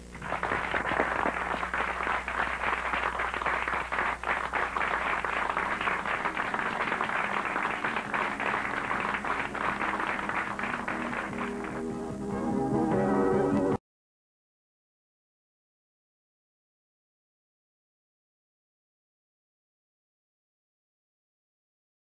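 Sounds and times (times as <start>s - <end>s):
audience applauding: 0.0s - 13.8s
faint music: 0.0s - 13.8s.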